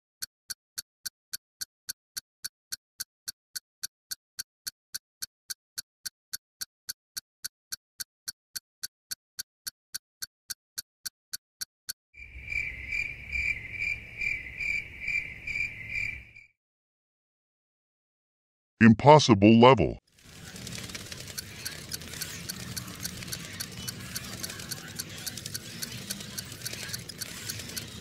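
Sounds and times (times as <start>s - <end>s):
timer ticking fast: 0.2s - 12.0s, 20.2s - 28.0s.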